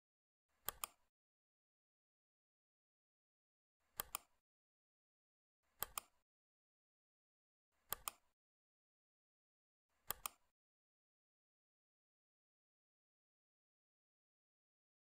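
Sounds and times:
computer mouse clicks: 0.6 - 1.1, 3.9 - 4.4, 5.8 - 6.2, 7.8 - 8.3, 10.0 - 10.5.

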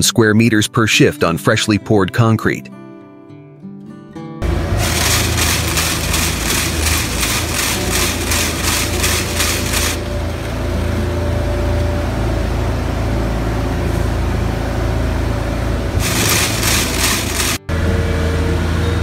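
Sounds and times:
engine humming: 4.4 - 19.0
rapidly pulsing hiss: 4.6 - 10.7, 16.0 - 17.7.

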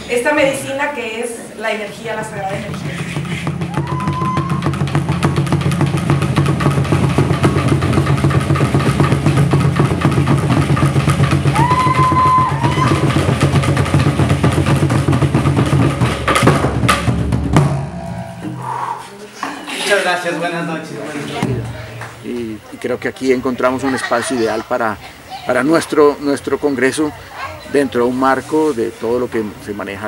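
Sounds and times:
fast steady drumming: 1.9 - 18.8.

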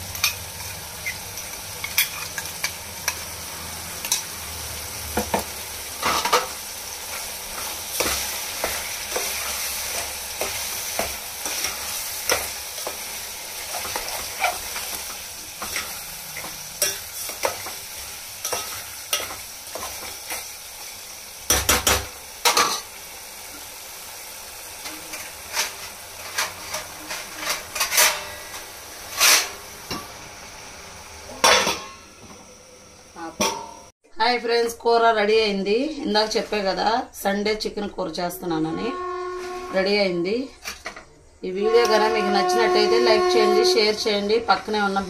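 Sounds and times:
curry sizzling in a pot: 0.0 - 33.9
metal spoon scraping a pot: 7.6 - 17.7, 25.5 - 29.6.

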